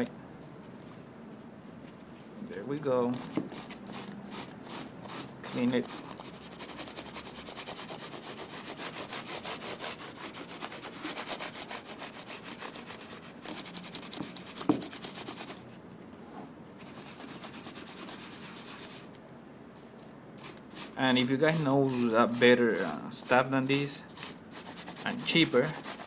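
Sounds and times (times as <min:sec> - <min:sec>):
putty scrubbing keyboard keys: 0:03.2 - 0:07.2, 0:11.1 - 0:15.6.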